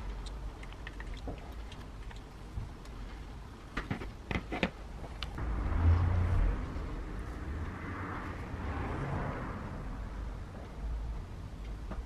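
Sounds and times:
low rumble with hiss: 4.9s - 12.0s.

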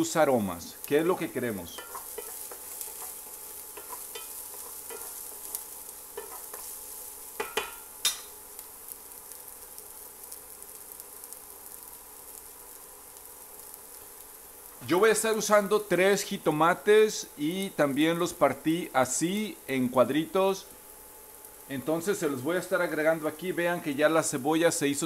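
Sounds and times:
onion sizzling in oil: 0.0s - 25.0s
wooden spoon stirring and tapping: 1.7s - 6.8s, 7.4s - 7.8s.

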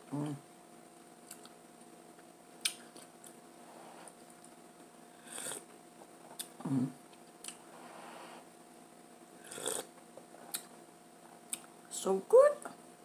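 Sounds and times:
slurping coffee: 9.4s - 9.9s.

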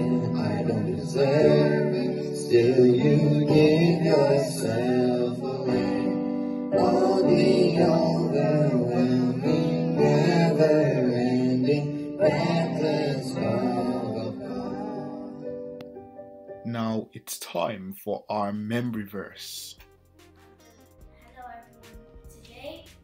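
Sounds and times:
boys singing worship song: 0.0s - 15.5s
electronic keyboard: 0.0s - 17.2s, 19.4s - 23.0s.

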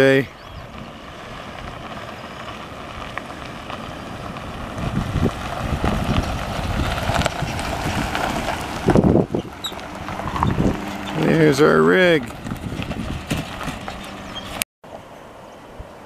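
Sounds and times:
truck driving on gravel: 0.0s - 16.0s.

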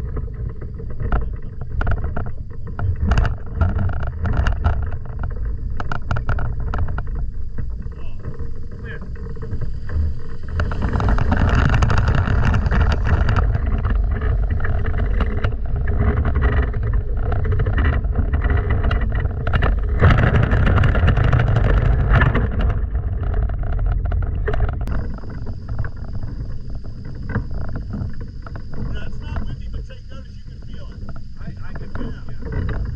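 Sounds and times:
wind buffeting microphone: 0.0s - 32.9s.

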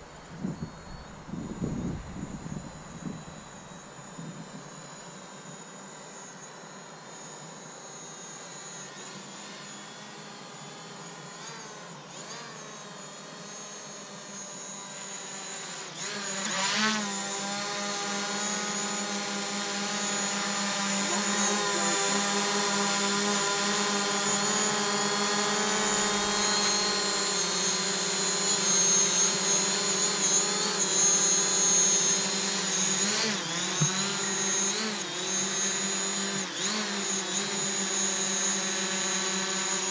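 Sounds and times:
drone propellers buzzing: 0.0s - 39.9s.

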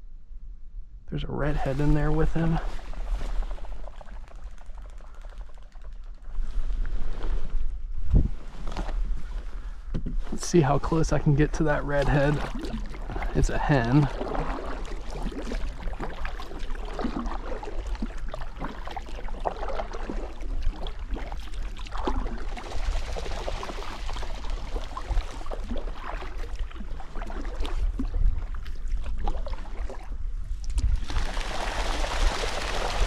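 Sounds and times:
kayak paddle strokes dripping: 2.6s - 5.9s, 10.8s - 31.0s.

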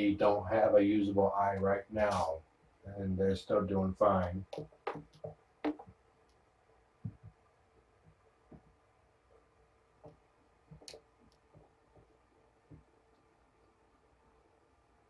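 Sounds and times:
faint steady hum: 0.0s - 15.0s
soft knocks: 4.4s - 6.0s, 7.0s - 7.4s.

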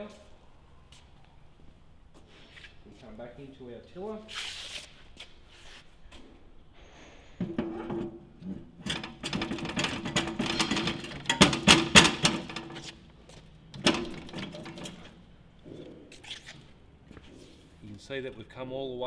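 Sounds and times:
metallic rattling and clatter: 7.4s - 15.4s
walking tractor mechanical hum: 7.5s - 18.6s.

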